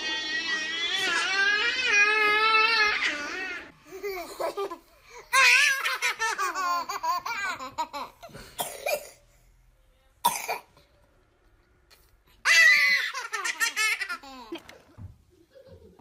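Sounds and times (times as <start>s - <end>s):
toddlers laughing: 0.0s - 8.6s, 12.4s - 16.0s.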